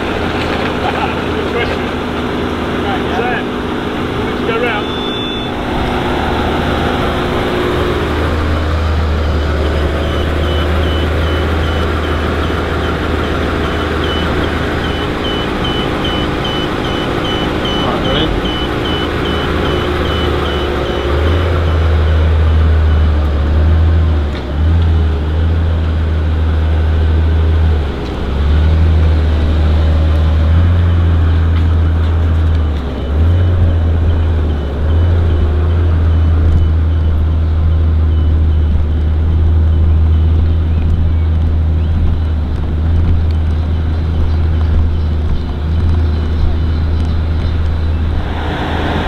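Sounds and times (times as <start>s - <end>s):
car engine low rumble: 0.0s - 49.0s
rapid high-pitched beeping: 4.5s - 6.0s, 9.3s - 23.1s.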